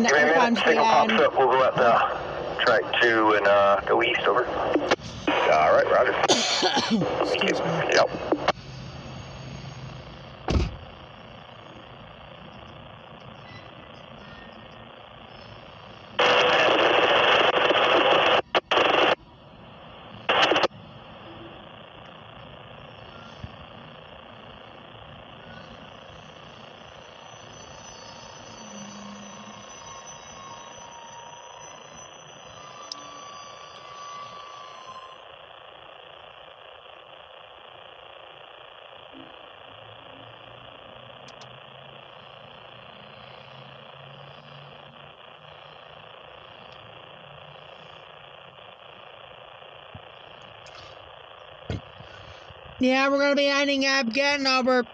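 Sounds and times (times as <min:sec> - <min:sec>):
radio squelch static: 0:00.0 - 0:54.9
low thump: 0:10.5 - 0:10.8
high-pitched wheel squeals: 0:27.3 - 0:35.2.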